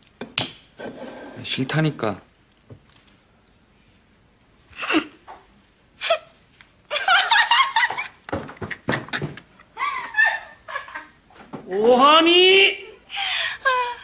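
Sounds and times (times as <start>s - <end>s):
girl laughing: 6.9s - 11.2s, 13.4s - 14.0s.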